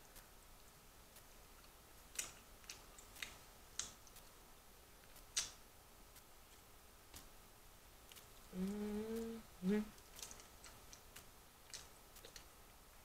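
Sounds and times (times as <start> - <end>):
chewing fried chicken: 9.9 - 12.6.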